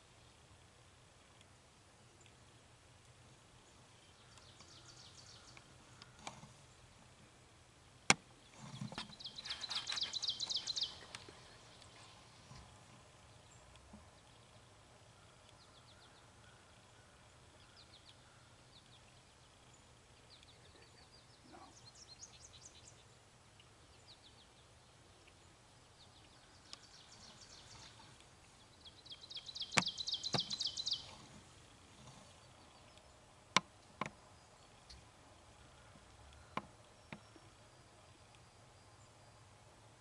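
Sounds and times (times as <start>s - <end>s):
songbirds trilling: 2.0s - 40.0s.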